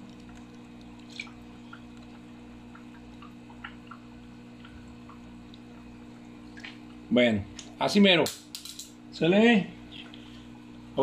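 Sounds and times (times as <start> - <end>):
water drips: 0.0 - 7.8
steady low hum: 0.0 - 11.0.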